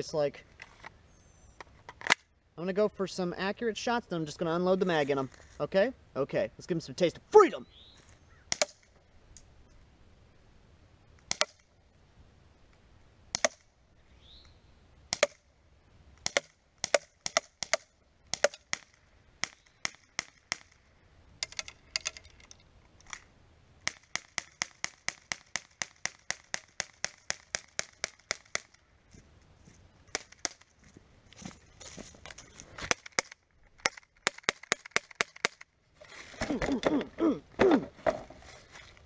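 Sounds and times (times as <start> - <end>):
airsoft pistol shots popping: 8.5 - 8.8, 15.1 - 15.4, 16.2 - 20.8.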